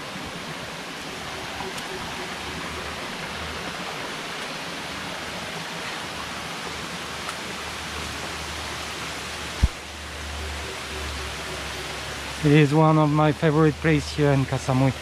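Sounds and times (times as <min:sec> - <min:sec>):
stream rushing over rocks: 0:00.0 - 0:15.0
short low thump: 0:09.6 - 0:09.8.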